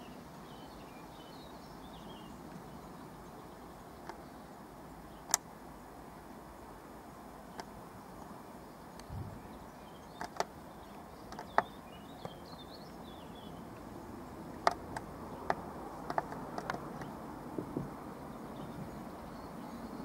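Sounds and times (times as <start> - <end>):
background hiss: 0.0 - 20.0
faint bird chirps: 7.5 - 13.7
tripod head clicking: 10.2 - 10.6, 11.3 - 12.4, 14.6 - 17.2.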